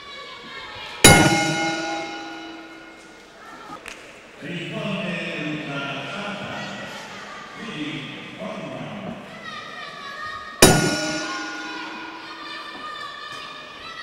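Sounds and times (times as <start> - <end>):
murmur of voices: 0.0 - 14.0
boxing ring bell ringing: 1.0 - 3.0, 10.6 - 12.7.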